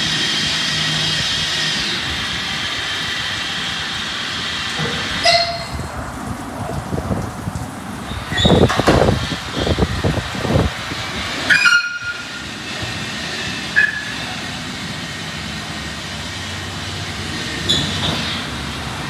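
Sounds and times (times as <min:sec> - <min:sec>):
high squeals: 0:00.0 - 0:06.0, 0:08.1 - 0:09.8, 0:11.4 - 0:14.6
car wash machine rushing hiss: 0:00.0 - 0:07.2, 0:07.8 - 0:19.0.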